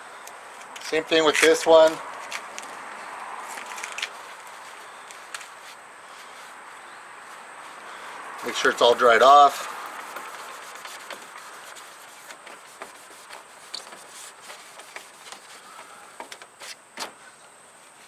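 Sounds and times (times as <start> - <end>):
paper towel rubbing plastic: 8.4 - 15.8.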